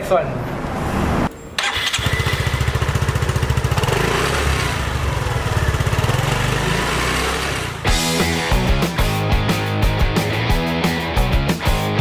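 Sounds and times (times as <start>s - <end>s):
scooter engine exhaust beat: 2.6s - 9.5s.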